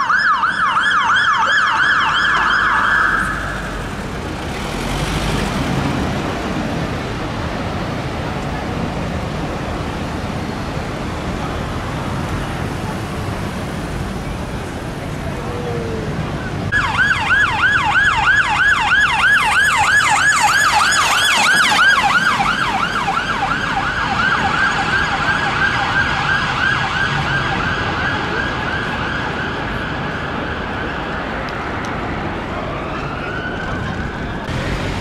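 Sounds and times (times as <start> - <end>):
siren yelping: 0.0 - 3.8, 15.5 - 31.2
city traffic noise: 0.0 - 35.0.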